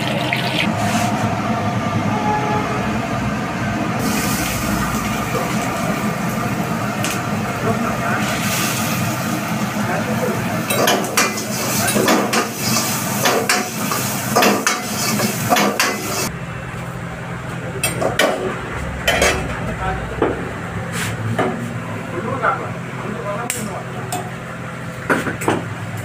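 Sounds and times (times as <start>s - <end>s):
frying sizzle: 4.0s - 16.3s
ladle scraping and clanking on wok: 10.6s - 16.3s.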